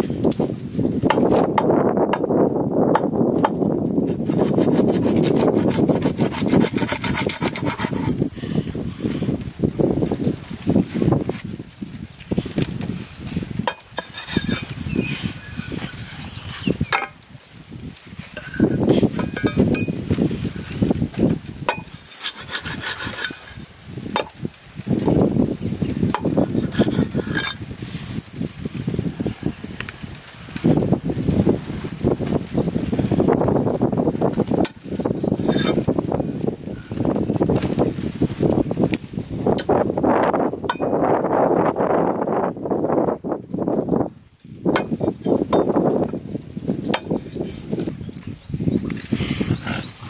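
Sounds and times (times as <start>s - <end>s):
cleaver scraping fish fin: 4.1s - 8.8s, 13.2s - 16.9s, 21.7s - 23.6s, 26.1s - 28.1s, 34.6s - 35.9s.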